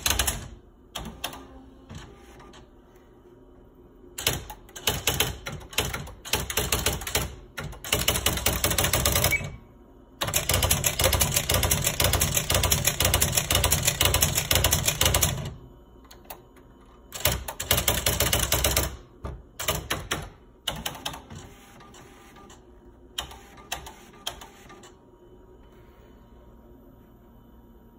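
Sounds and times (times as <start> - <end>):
electronic typewriter typing: 0.0 - 2.6, 4.2 - 9.6, 10.2 - 16.4, 17.1 - 22.6, 23.2 - 25.0.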